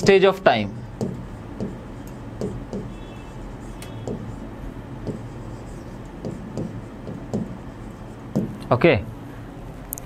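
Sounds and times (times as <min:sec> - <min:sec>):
steady low hum: 0:00.0 - 0:10.0
taps and knocks on a board: 0:04.0 - 0:04.3, 0:06.2 - 0:07.6, 0:08.3 - 0:08.7.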